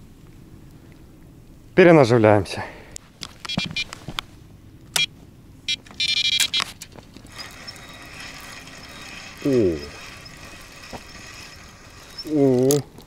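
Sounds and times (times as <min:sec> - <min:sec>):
reel buzzy rasps: 0:07.3 - 0:13.0.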